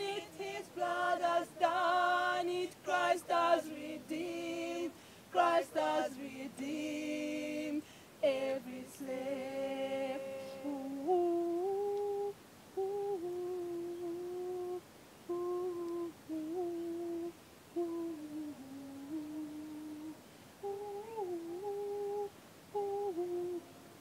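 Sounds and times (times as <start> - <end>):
woman humming: 10.0 - 23.7.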